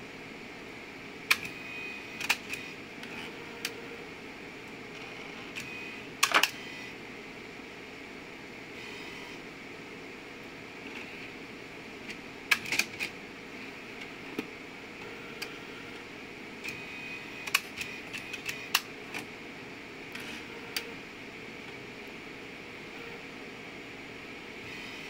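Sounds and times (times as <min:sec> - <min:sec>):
machine fan hum: 0:00.0 - 0:25.0
mechanical clicks and clacks: 0:12.5 - 0:13.2, 0:17.4 - 0:19.3.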